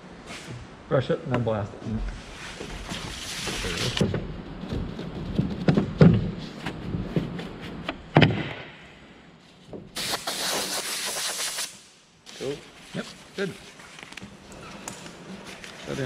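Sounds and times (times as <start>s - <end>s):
compressed air blow gun hissing: 10.0s - 11.8s.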